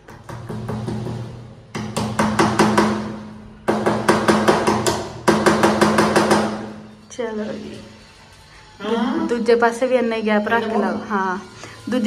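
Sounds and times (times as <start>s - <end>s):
hammer tapping a nail into wood: 0.0s - 6.7s.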